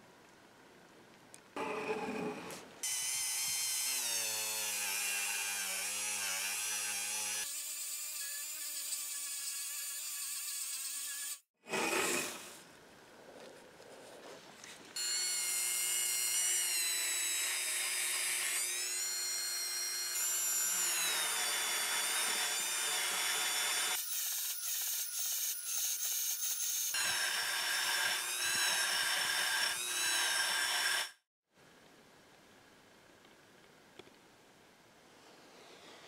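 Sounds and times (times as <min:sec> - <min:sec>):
rotary tool grinding metal: 0:15.0 - 0:31.2.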